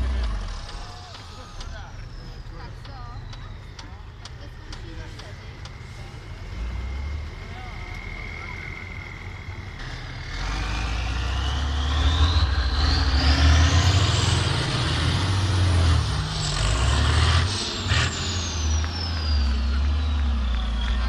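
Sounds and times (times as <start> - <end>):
diesel truck engine rumbling: 0.0 - 21.0
high whine rising in pitch: 7.0 - 21.0.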